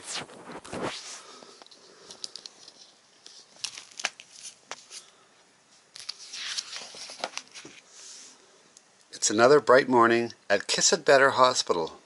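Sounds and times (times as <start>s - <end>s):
page turning rustle: 0.0s - 5.2s, 5.8s - 7.8s.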